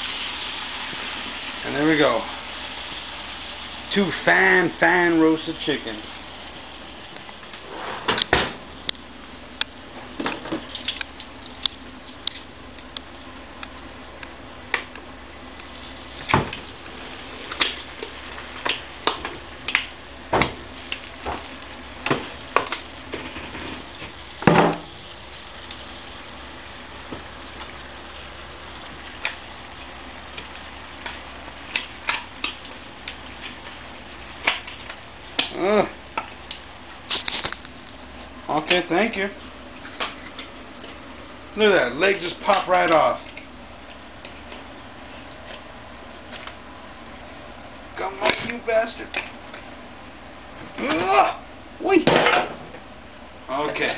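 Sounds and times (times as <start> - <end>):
chickens sizzling in a pan: 0.0 - 53.6.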